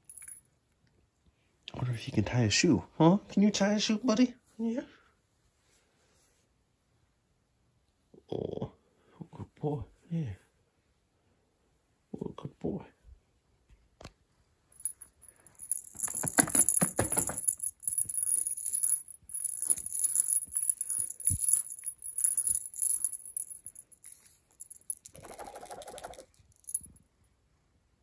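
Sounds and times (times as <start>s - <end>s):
jingle bell rattling: 0.0s - 0.4s, 14.8s - 27.0s.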